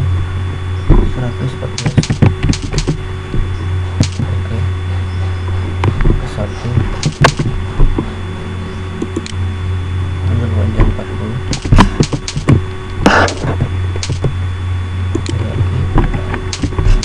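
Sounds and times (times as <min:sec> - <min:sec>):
low electrical hum: 0:00.0 - 0:17.0
keyboard keystrokes: 0:01.8 - 0:03.0, 0:04.0 - 0:04.2, 0:07.0 - 0:07.5, 0:11.5 - 0:13.4, 0:14.0 - 0:14.3, 0:15.1 - 0:15.4, 0:16.5 - 0:17.0
mouse clicks: 0:09.0 - 0:09.4, 0:11.5 - 0:13.4, 0:14.0 - 0:14.3, 0:15.1 - 0:15.4.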